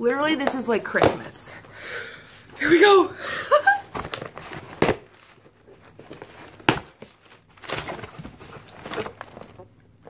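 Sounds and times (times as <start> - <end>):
packaging rustling: 3.5 - 10.0.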